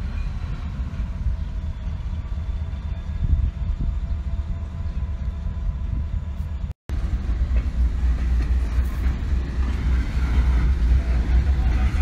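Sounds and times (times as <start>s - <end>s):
freight train rumbling past: 0.0s - 12.0s
wheel-on-rail noise: 6.9s - 12.0s.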